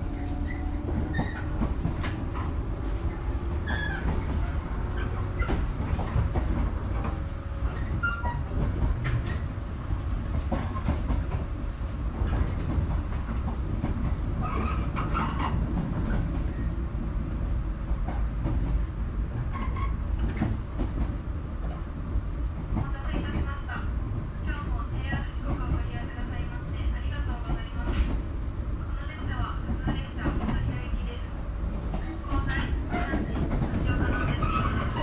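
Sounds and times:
train wheels rumbling: 0.0s - 35.0s.

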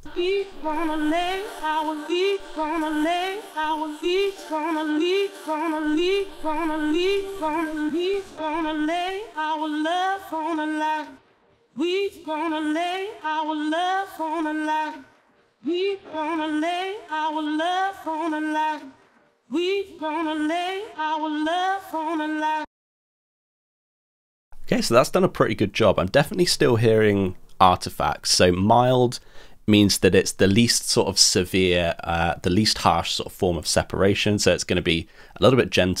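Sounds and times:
woman singing: 0.0s - 11.2s, 11.8s - 22.7s.

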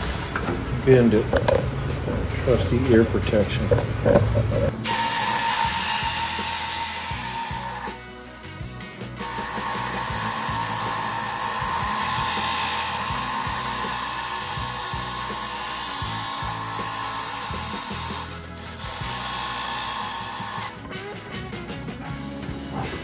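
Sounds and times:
band saw cutting metal: 4.6s - 8.2s, 9.2s - 21.1s.

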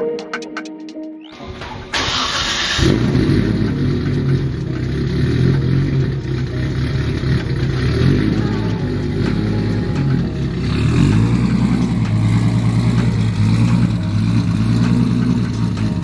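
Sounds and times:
car engine idling: 1.4s - 16.0s
starter motor cranking: 1.6s - 4.7s.

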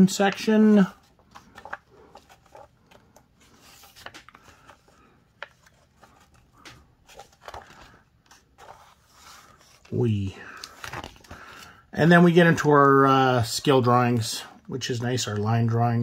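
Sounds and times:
book pages turning: 0.0s - 12.3s.

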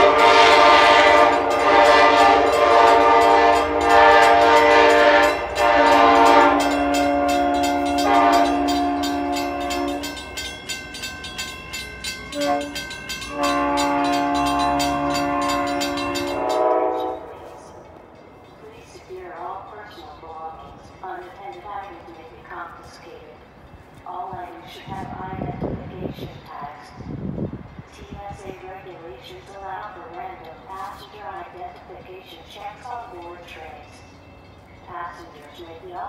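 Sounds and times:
locomotive horn blasts: 0.0s - 10.4s, 12.2s - 18.0s.

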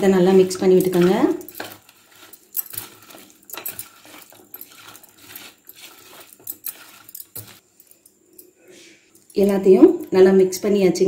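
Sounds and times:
batter mixing rustles: 0.0s - 7.7s
bangles clinking against a bowl: 0.0s - 10.2s.

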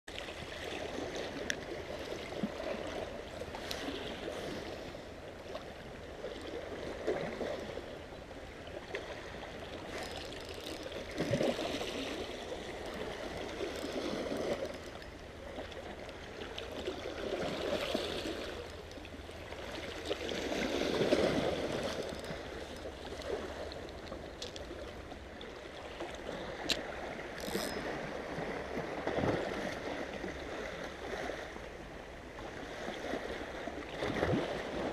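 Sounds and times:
waves lapping against rocks: 0.1s - 34.9s.

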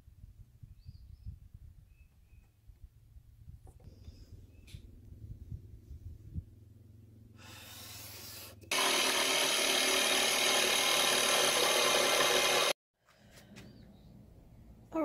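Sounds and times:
electric jigsaw cutting wood: 8.7s - 12.8s.

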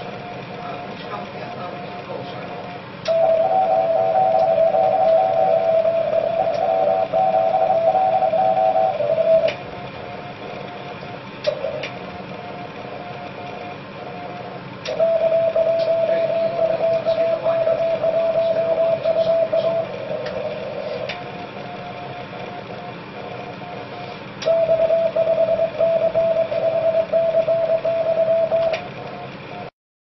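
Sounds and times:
radio band hiss: 0.5s - 9.4s, 15.7s - 21.2s
morse code beeps: 3.1s - 9.6s, 14.9s - 21.1s, 23.6s - 28.9s.

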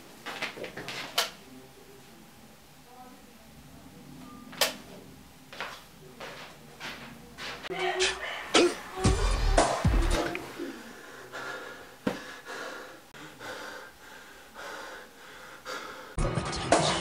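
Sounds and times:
music: 9.0s - 10.4s, 16.2s - 17.0s
man gasping and breathing heavily: 10.5s - 16.2s.

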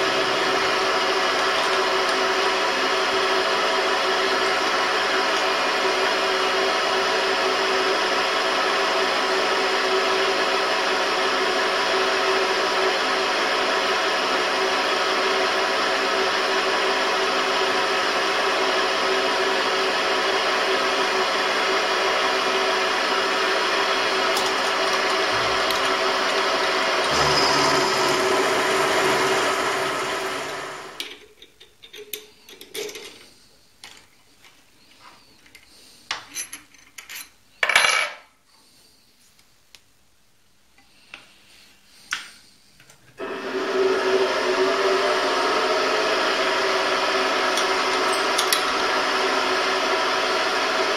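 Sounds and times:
milling machine motor whining: 23.6s - 31.0s, 43.2s - 50.9s.

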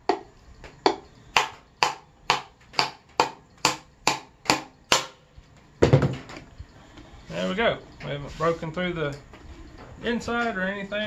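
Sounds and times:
hammer driving nail into wood: 0.9s - 5.2s.

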